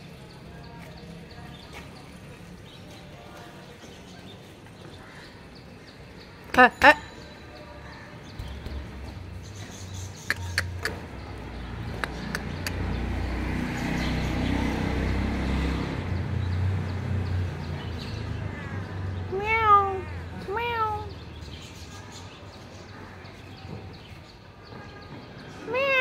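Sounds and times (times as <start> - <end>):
cat meowing: 19.3 - 21.2, 25.7 - 26.0.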